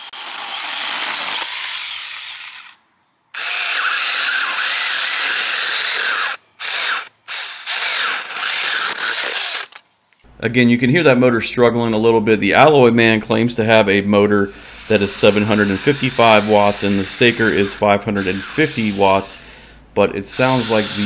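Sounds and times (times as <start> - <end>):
electric chainsaw cutting a branch: 0.0 - 2.8, 3.4 - 9.8, 14.6 - 19.5, 20.3 - 21.0.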